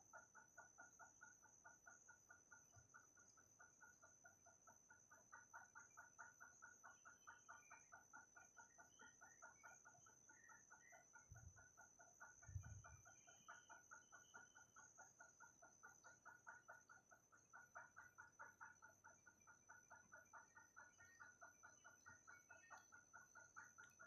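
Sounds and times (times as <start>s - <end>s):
steady high-pitched whine: 0.0s - 24.0s.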